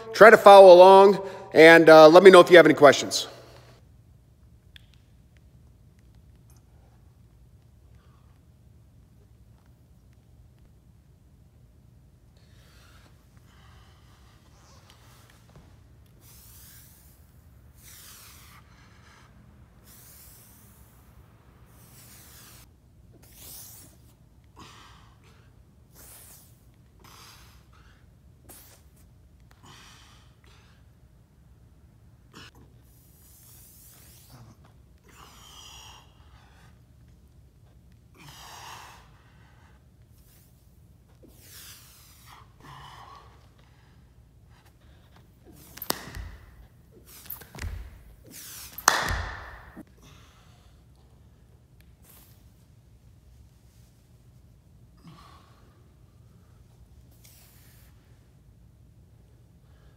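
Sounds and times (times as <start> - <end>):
man breathing faintly: 12.3 - 31.5, 32.2 - 52.6
hand claps: 45.7 - 46.5, 48.6 - 49.8
palms thudding on floor: 48.8 - 49.8.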